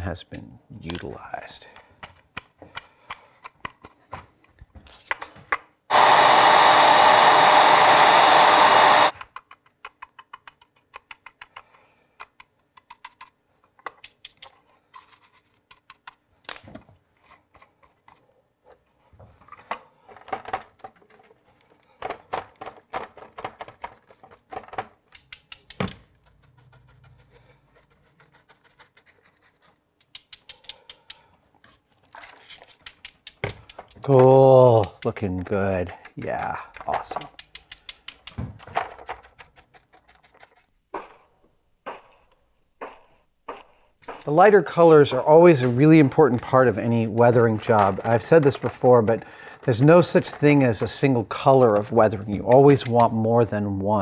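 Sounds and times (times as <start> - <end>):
brush dabbing and scratching plastic: 20.6 - 22.0, 22.6 - 41.1, 41.8 - 53.7.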